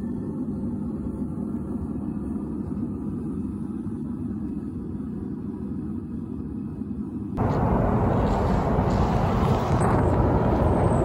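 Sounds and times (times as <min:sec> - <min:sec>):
forge burner roaring: 0:07.4 - 0:11.0.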